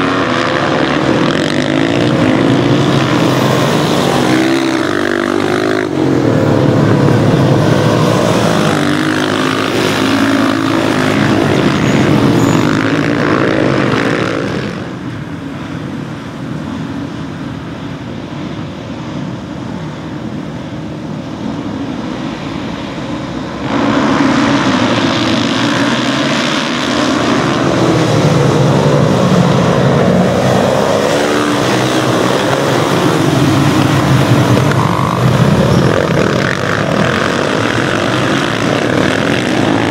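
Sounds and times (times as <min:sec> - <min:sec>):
motorcycle engines revving: 0:00.0 - 0:39.9
motorcycles idling: 0:28.0 - 0:39.9.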